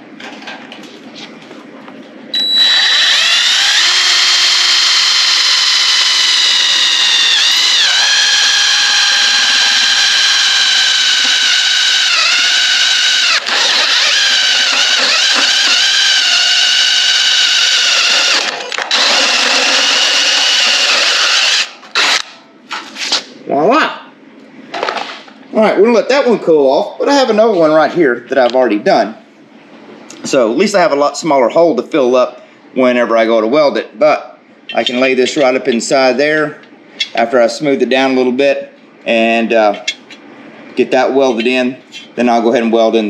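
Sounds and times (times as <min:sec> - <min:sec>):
drill hole saw cutting steel: 0:02.4 - 0:22.3.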